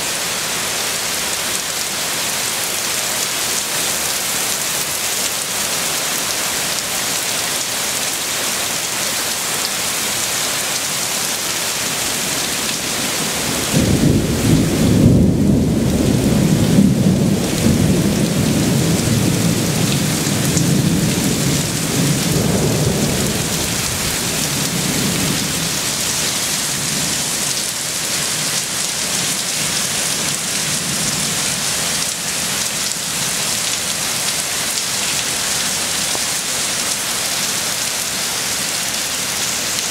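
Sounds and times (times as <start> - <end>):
heavy rain: 0.0 - 39.9
thunder rumbling: 13.1 - 27.5.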